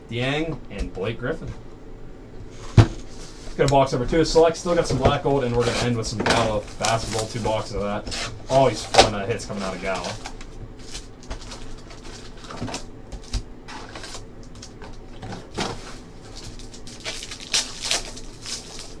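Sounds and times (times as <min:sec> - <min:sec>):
cardboard and foil packs rustling: 0:03.0 - 0:19.0
foil pack tearing open: 0:05.6 - 0:07.7, 0:08.8 - 0:19.0.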